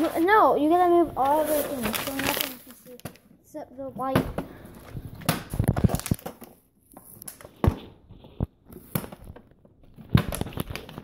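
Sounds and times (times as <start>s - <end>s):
plastic bottle crinkling: 1.2s - 3.2s, 5.4s - 7.5s, 8.4s - 11.0s.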